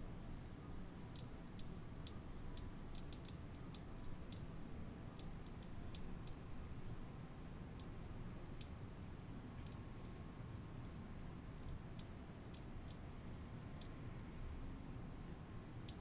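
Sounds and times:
low steady hum: 0:00.0 - 0:16.0
soldering iron ticking and crackling: 0:01.1 - 0:06.9.

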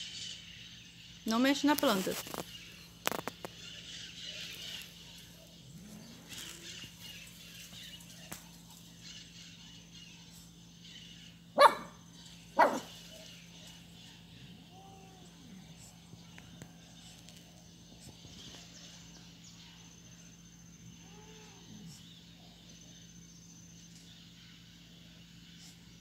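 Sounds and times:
dog barking: 0:11.6 - 0:12.0, 0:12.6 - 0:13.3.

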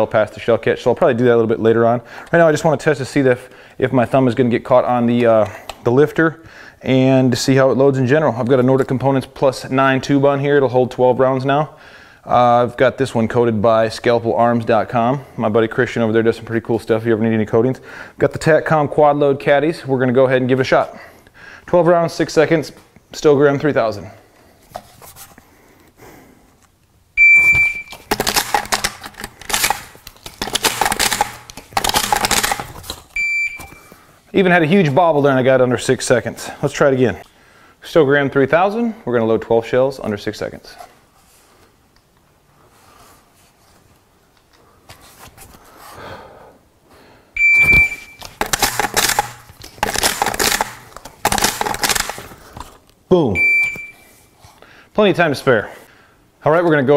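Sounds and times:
shot timer beep: 0:27.2 - 0:28.0, 0:33.2 - 0:33.8, 0:47.4 - 0:48.2, 0:53.4 - 0:54.0
shotgun shells clacking: 0:27.7 - 0:33.2, 0:47.9 - 0:52.4.

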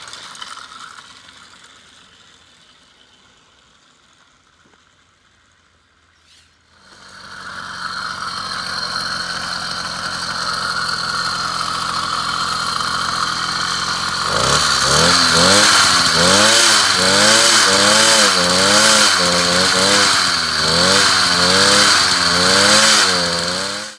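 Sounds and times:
small motorbike engine revving: 0:06.7 - 0:23.9.

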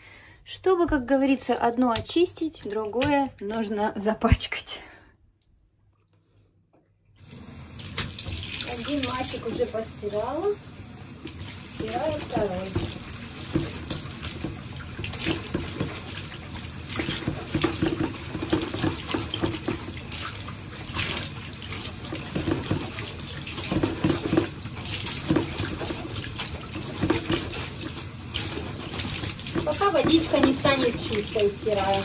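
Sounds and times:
water running from tap: 0:07.2 - 0:32.0
wet cloth splashing: 0:11.2 - 0:32.0.

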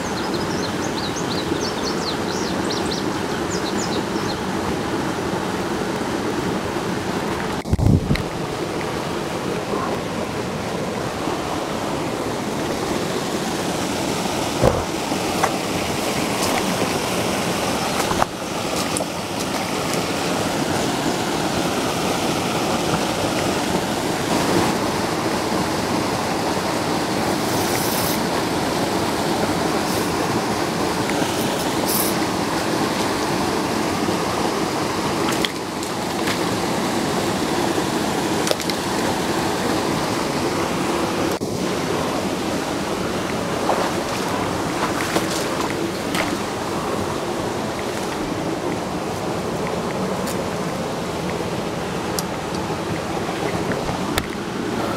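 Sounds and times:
water rushing over spillway: 0:00.0 - 0:54.9
brief knocks: 0:14.6 - 0:15.0.

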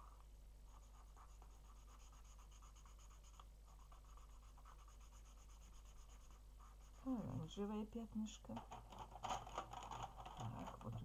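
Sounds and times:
marker scribbling on paper: 0:00.7 - 0:07.2.

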